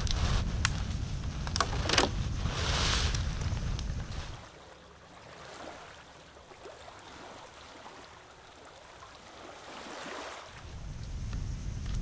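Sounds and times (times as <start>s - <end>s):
small waves lapping on shore: 1.9s - 10.8s.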